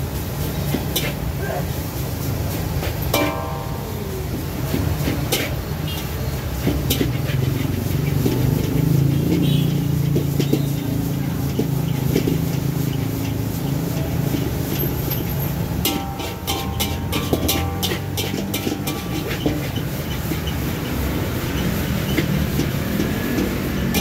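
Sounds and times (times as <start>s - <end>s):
traffic engine hum: 0.0s - 24.0s
metal spatula scraping a wok: 0.1s - 24.0s.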